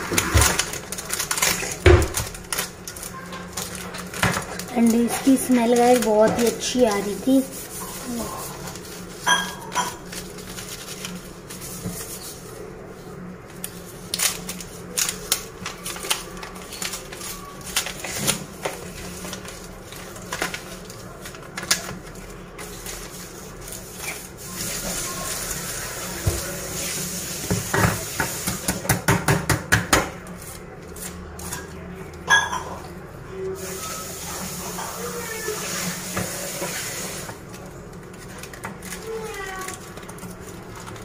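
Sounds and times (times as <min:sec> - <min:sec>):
chocolate wrapper crinkling: 0:00.0 - 0:12.6, 0:13.4 - 0:25.5, 0:37.1 - 0:41.0.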